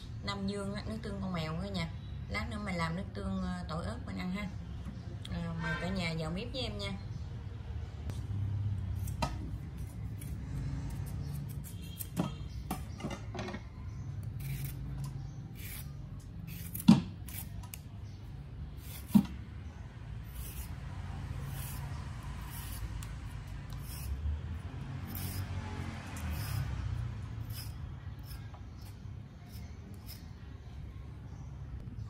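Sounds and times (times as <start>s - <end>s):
peeler scraping carrot: 8.9s - 12.5s, 14.2s - 17.9s, 18.7s - 19.3s, 20.2s - 30.5s.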